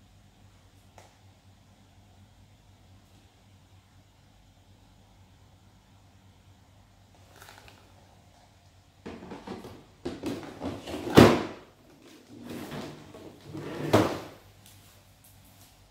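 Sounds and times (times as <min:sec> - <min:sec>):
plastic drawers sliding: 0:09.1 - 0:14.4.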